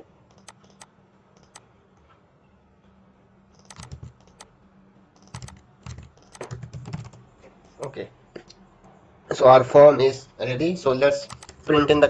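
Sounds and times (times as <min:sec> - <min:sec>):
keyboard typing: 0:00.3 - 0:01.6, 0:03.5 - 0:04.5, 0:05.2 - 0:08.5, 0:11.2 - 0:12.0.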